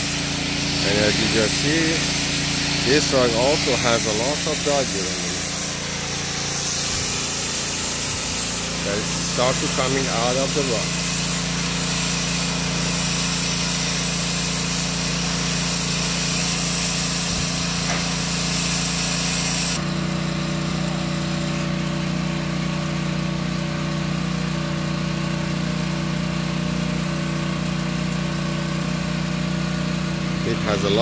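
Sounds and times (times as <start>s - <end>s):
extraction machine motor hum: 0.0s - 13.1s
loud rushing hiss: 0.0s - 19.8s.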